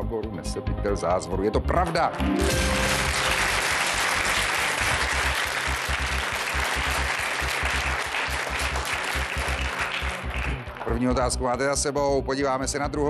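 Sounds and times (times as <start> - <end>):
studio audience applauding: 1.9 - 11.4.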